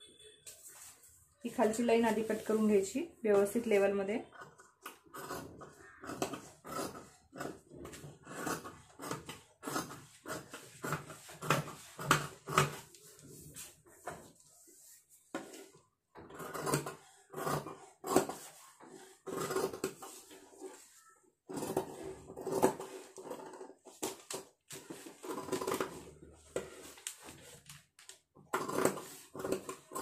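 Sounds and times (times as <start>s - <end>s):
scissors snipping fabric: 4.3s - 13.0s, 16.3s - 20.4s, 28.5s - 30.0s.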